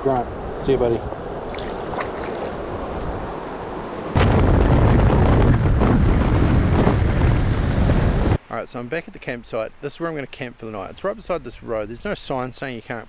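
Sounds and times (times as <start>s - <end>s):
river water running: 0.0s - 4.2s
wind buffeting microphone: 0.0s - 8.4s.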